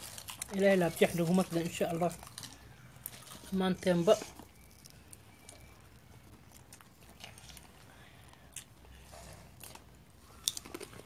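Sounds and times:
crisps crunching: 0.0 - 11.0.

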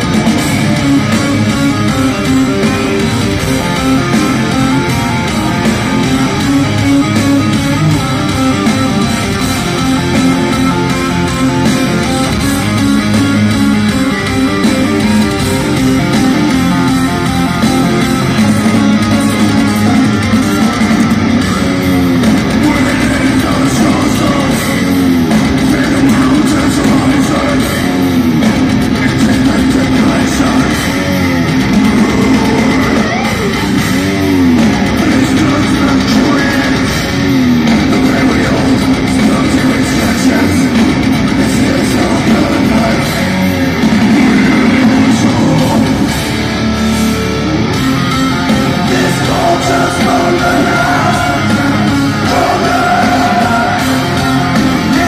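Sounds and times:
bass: 0.0 - 55.0
distorted electric guitars: 0.0 - 55.0
drums: 0.0 - 55.0.

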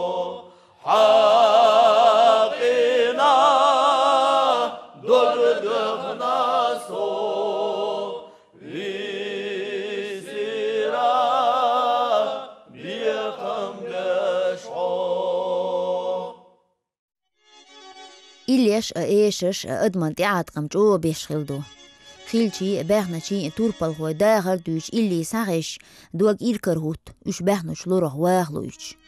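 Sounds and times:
male choir singing unaccompanied: 0.0 - 16.5.

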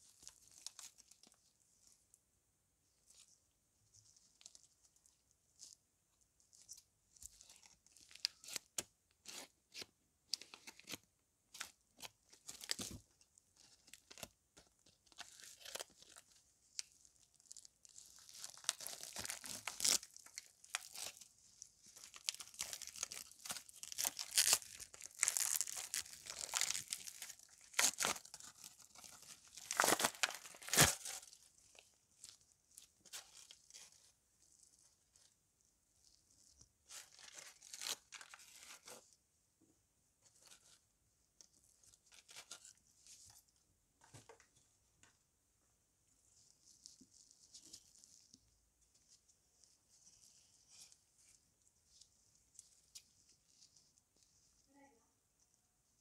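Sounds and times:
plastic wrapper crinkling and tearing: 0.0 - 1.4, 6.5 - 35.3, 36.0 - 39.1.

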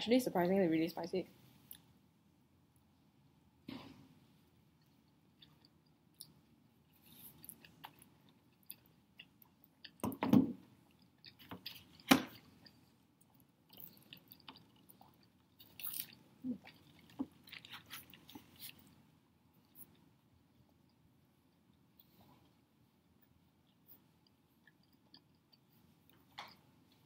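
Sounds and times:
person chewing with mouth smacks: 4.8 - 10.0, 10.9 - 19.0, 23.3 - 27.0.

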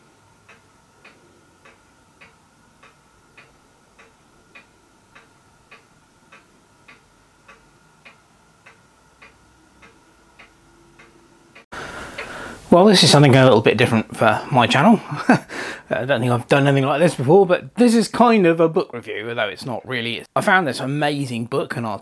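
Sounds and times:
faint steady hum: 0.0 - 22.0
clock-like ticking: 0.4 - 12.4.

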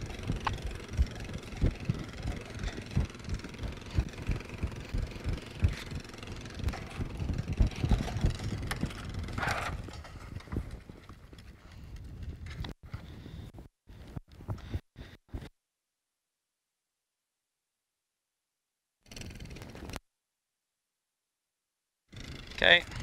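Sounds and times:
low thumps: 0.0 - 9.9
atv engine running slowly: 0.0 - 11.5.

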